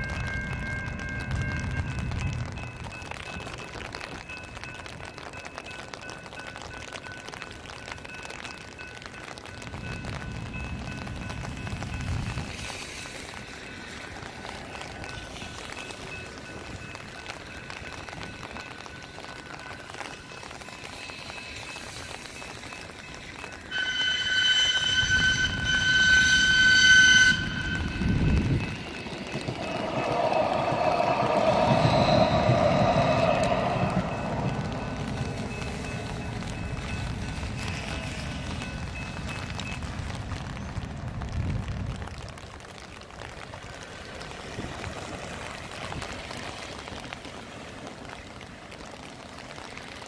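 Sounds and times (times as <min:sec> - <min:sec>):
rain: 0:00.0 - 0:50.0
train rumbling: 0:00.0 - 0:50.0
car tyres hissing on wet road: 0:11.4 - 0:16.7, 0:20.6 - 0:41.8, 0:43.0 - 0:50.0
train horn blast: 0:23.7 - 0:35.5.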